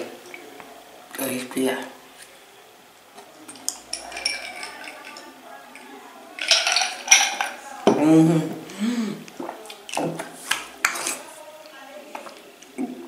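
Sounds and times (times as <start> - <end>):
boy groaning: 8.0 - 9.3
boy gasping: 8.3 - 9.3.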